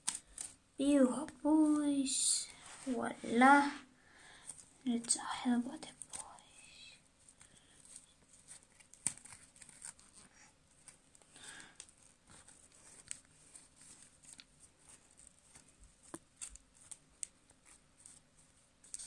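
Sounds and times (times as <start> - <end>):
faint rustling: 0.0 - 19.0.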